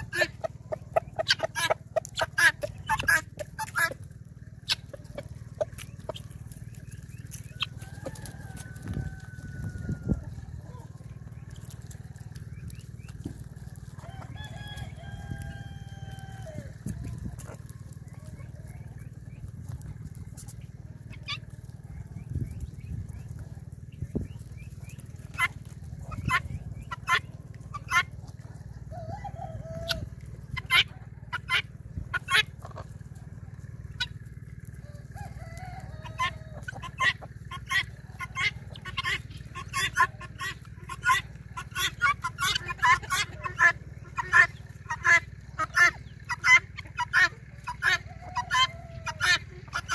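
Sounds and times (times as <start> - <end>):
guinea fowl short sharp calls: 0.0 - 4.0, 4.6 - 13.4, 22.2 - 33.0, 35.2 - 49.9
chickens clucking: 0.0 - 49.9
steady low hum: 0.0 - 49.9
rooster crowing: 7.7 - 10.6, 13.9 - 16.8, 28.8 - 30.2, 34.8 - 36.8, 47.8 - 49.4.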